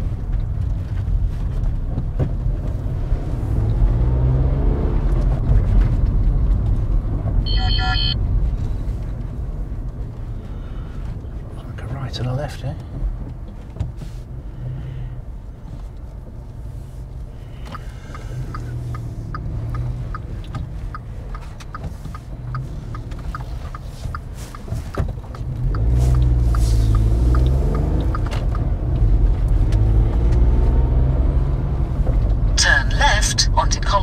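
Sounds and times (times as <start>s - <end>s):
engine and road noise in cab: 0.0s - 34.0s
turn indicator ticking: 17.6s - 30.4s.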